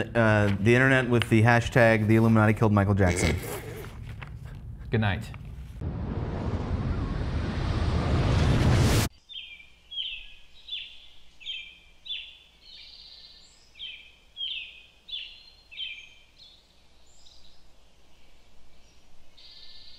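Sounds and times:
bird chirping: 9.1 - 19.9.

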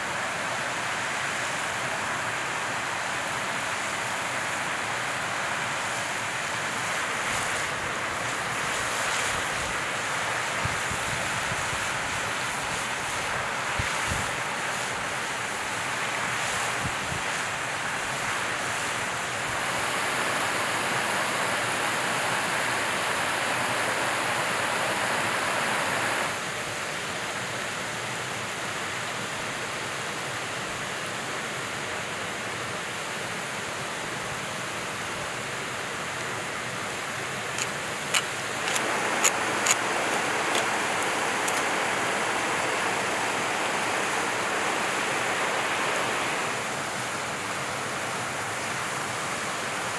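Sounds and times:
steady rushing outdoor ambience: 0.0 - 49.9
sharp ticks: 37.6 - 40.7.

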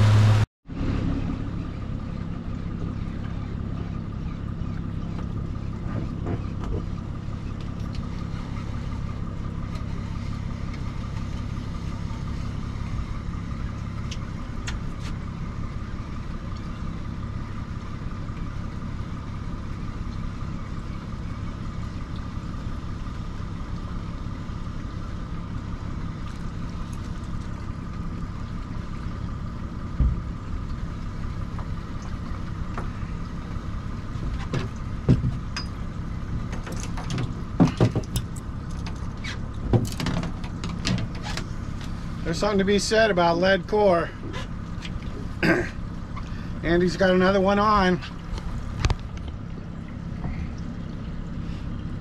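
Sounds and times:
outboard motor running: 0.0 - 52.0.

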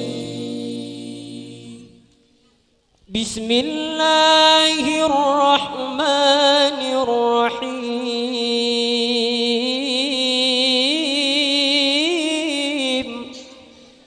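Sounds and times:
men chanting together: 0.0 - 2.1
man singing ornamented notes: 3.1 - 14.0.

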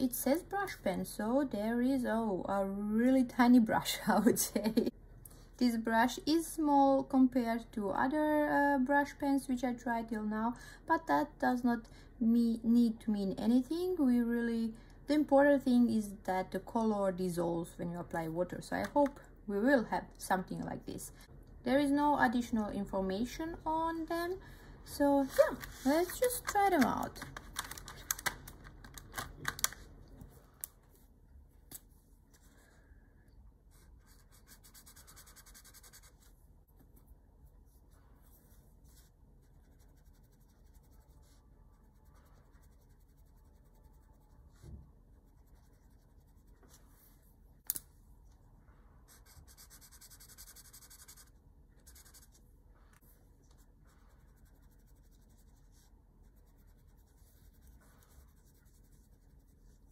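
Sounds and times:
brush scratching on paper: 33.7 - 36.4, 37.6 - 47.2, 49.1 - 52.5, 53.2 - 59.9.

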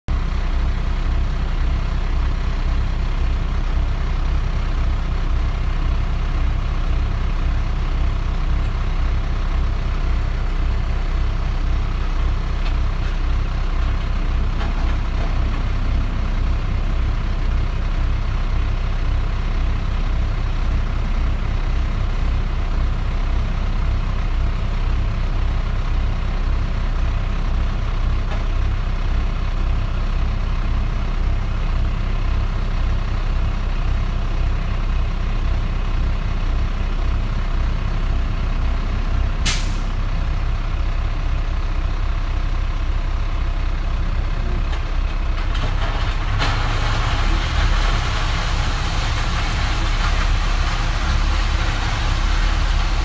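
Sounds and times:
diesel truck engine rumbling: 0.1 - 53.0.

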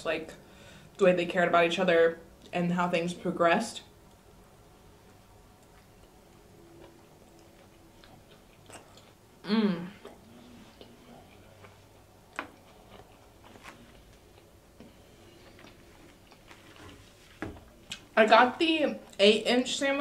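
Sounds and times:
chewing with wet mouth clicks: 5.0 - 9.2, 10.0 - 13.3
woman humming with mouth full: 9.4 - 10.1.

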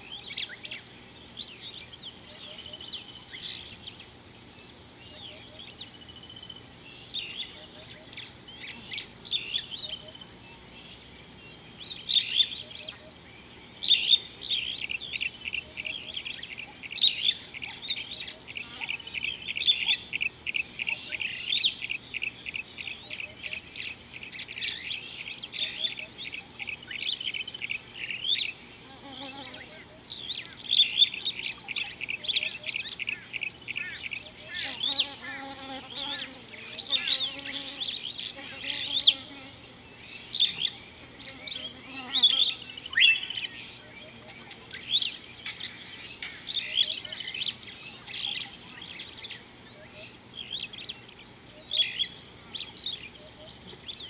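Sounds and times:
small birds chirping: 0.0 - 54.0
lower bird call: 5.0 - 11.0.

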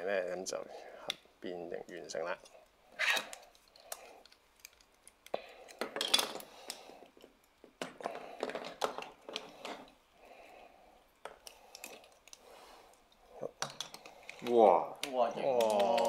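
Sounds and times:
plastic toy parts clicking: 13.6 - 16.0.

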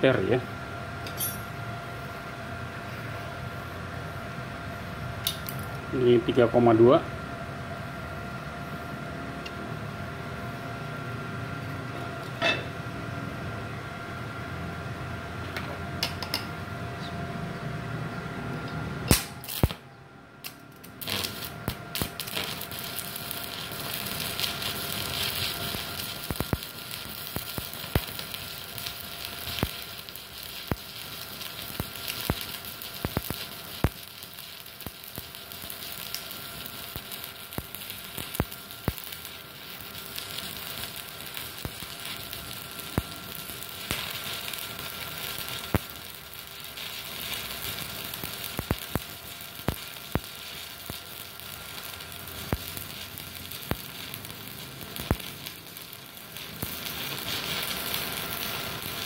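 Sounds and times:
steady hum: 0.0 - 59.0
welding arc crackling: 18.9 - 19.8, 20.4 - 59.0.

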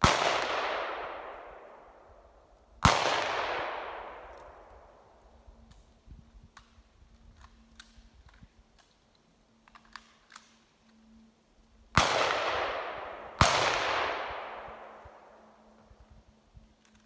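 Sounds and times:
gunshots with long echo: 0.0 - 5.4, 11.9 - 15.8.

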